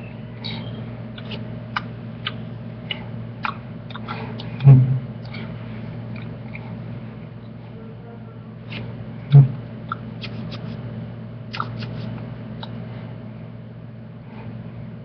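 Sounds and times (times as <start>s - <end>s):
low electrical hum: 0.0s - 15.0s
low thump: 4.6s - 5.1s.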